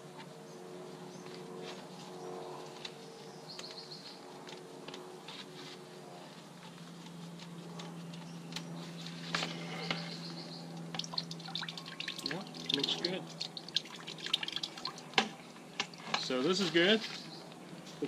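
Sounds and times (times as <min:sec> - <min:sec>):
birds chirping: 0:02.2 - 0:04.3, 0:08.1 - 0:18.0.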